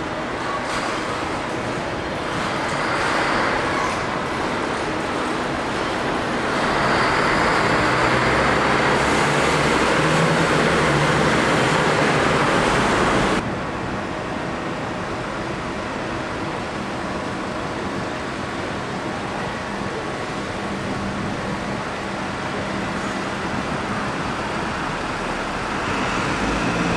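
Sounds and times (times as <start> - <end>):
bus engine humming: 0.0 - 13.5, 14.8 - 26.9
diesel coach engine pulling away: 5.6 - 13.4, 23.1 - 26.9.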